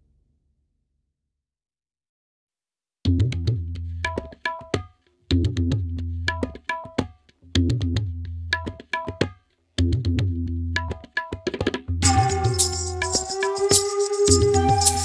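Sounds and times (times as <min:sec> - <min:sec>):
hand drumming: 0:10.8 - 0:15.0.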